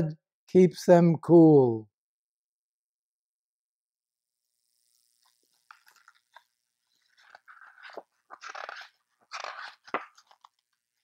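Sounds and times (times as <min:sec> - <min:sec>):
book pages turning: 0:05.7 - 0:10.8
paper rustling: 0:07.0 - 0:10.6.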